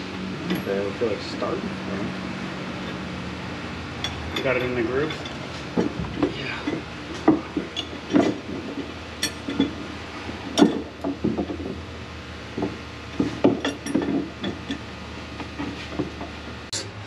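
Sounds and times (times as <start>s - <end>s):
steady low hum: 0.0s - 17.0s
hand tools clinking on metal: 0.4s - 1.5s, 4.0s - 9.8s, 13.2s - 14.9s.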